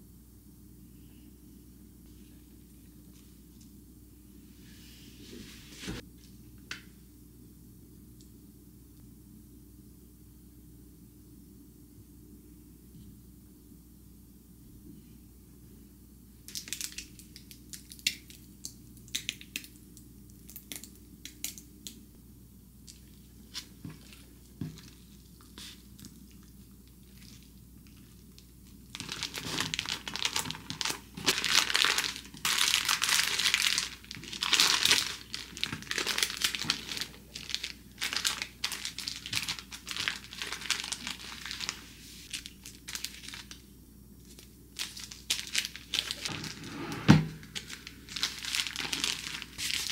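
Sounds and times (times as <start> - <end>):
baking paper crinkling: 22.9 - 46.7, 47.3 - 49.9.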